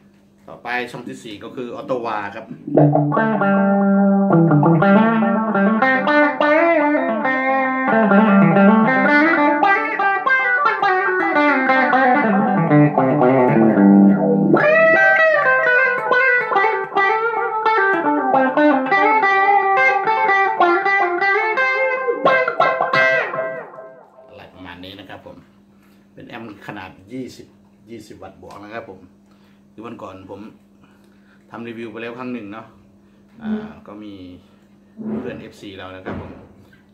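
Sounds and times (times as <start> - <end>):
electric guitar with auto-wah: 2.5 - 24.4.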